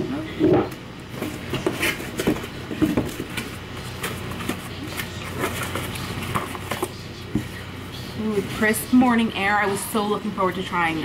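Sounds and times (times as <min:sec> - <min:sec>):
cardboard rustling and tapping: 0:01.2 - 0:07.5.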